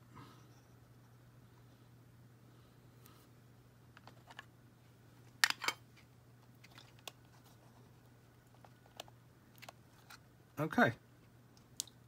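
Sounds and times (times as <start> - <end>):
faint low hum: 0.0 - 12.0.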